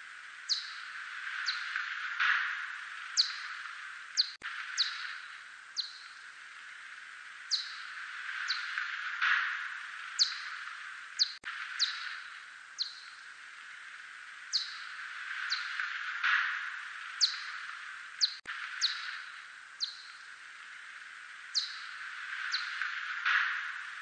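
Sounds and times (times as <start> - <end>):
steady hiss: 0.0 - 24.0
bat echolocation chirps: 0.4 - 6.3, 7.5 - 13.3, 14.5 - 15.9, 16.6 - 20.3, 21.5 - 23.8.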